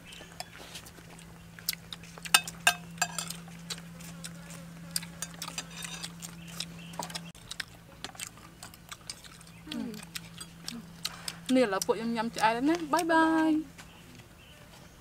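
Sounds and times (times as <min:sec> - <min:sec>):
low hum: 0:00.0 - 0:14.1
chewing and lip-smacking: 0:00.1 - 0:13.4
spoons clicking on plates: 0:02.3 - 0:03.4.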